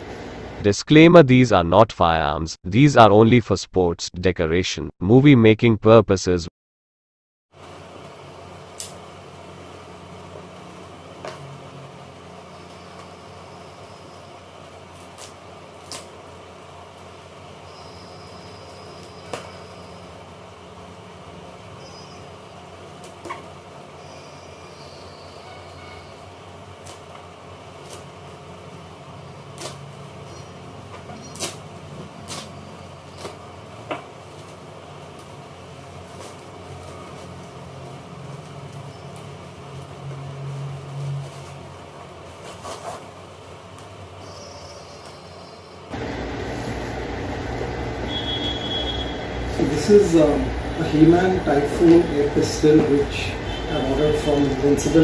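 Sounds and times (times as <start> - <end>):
low room hum: 7.6 - 55.0
paper ripping: 42.4 - 43.2.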